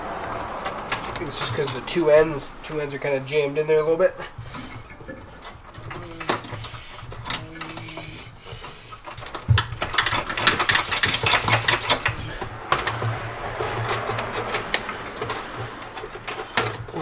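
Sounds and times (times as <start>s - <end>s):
plastic connectors clicking and rattling: 4.5s - 12.4s.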